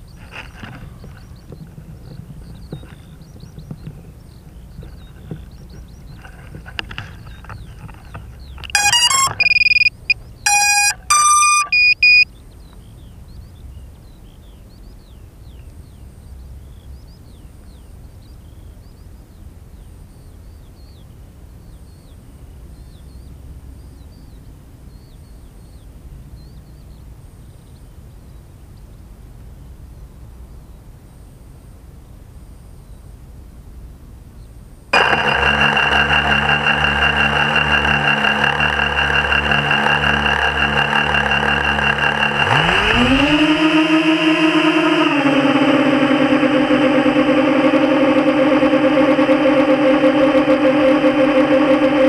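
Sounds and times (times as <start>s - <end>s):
faint low rumble: 0.0s - 43.7s
small high chirps: 8.5s - 12.3s
electronic beeps at changing pitches: 8.6s - 12.3s, 35.0s - 43.6s, 44.6s - 52.0s.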